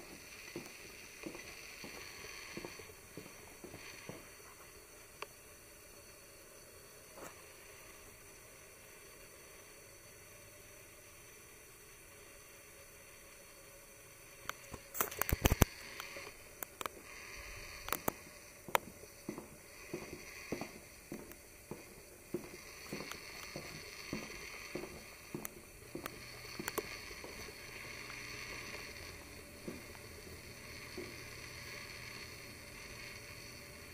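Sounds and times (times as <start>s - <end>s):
soft footsteps: 0.0s - 4.8s, 14.6s - 33.7s
steady hiss: 0.0s - 33.9s.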